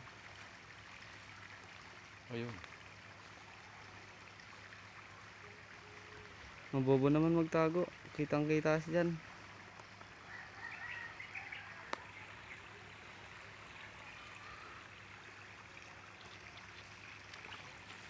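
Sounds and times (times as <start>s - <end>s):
creek water running: 0.0s - 18.0s
birds chirping: 10.3s - 14.9s.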